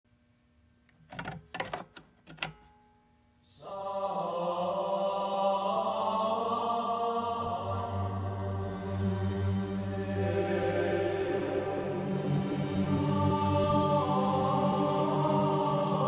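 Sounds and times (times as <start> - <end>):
background music with held notes: 3.7 - 16.0.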